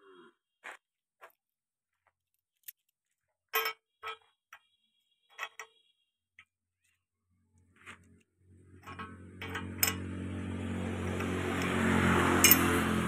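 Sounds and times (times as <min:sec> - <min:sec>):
metallic clinks of bearing parts: 0:03.5 - 0:04.7, 0:05.3 - 0:05.9, 0:08.8 - 0:10.1, 0:12.4 - 0:12.8.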